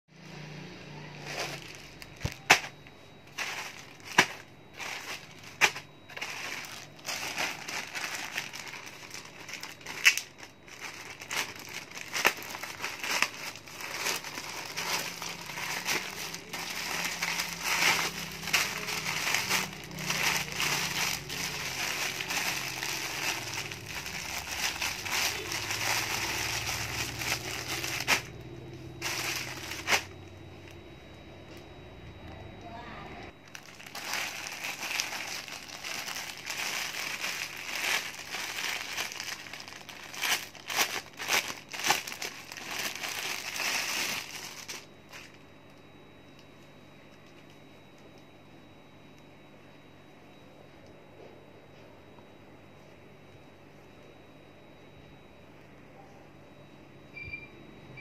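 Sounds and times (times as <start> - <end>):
plastic bags crinkling: 0.2 - 31.6, 33.3 - 47.6
plastic packaging snaps: 9.9 - 10.3.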